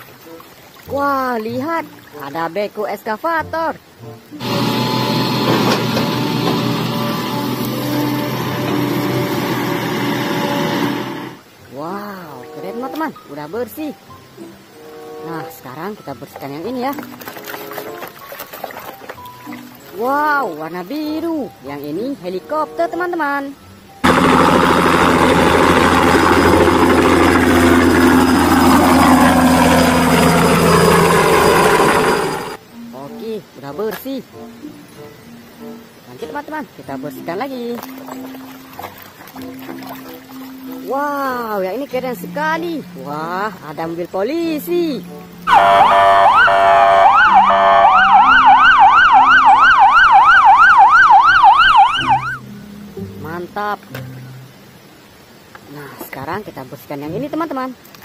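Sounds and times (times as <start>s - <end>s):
helicopter hovering: 4.4s - 11.4s, 24.0s - 32.6s
police sirens wailing: 45.5s - 52.4s
siren fast yelp: 45.5s - 52.4s.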